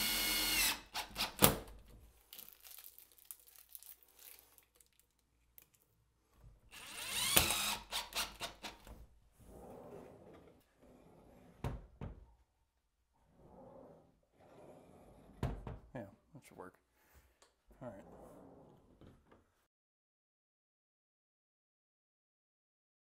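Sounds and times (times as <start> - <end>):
cordless drill motor: 0.0 - 1.4, 6.7 - 8.8
sharp drill clicks: 6.8 - 8.8.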